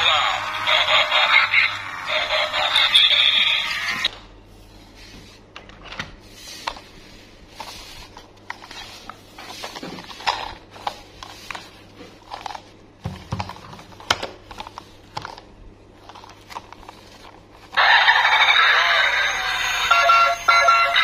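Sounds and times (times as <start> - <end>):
loud electronic toy music: 0.0 - 4.1, 17.8 - 21.0.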